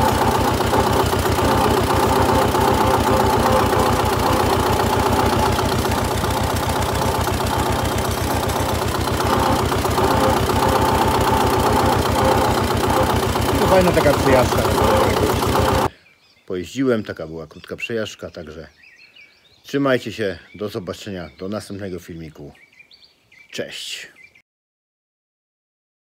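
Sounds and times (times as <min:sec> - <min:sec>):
tractor diesel engine running: 0:00.0 - 0:15.9.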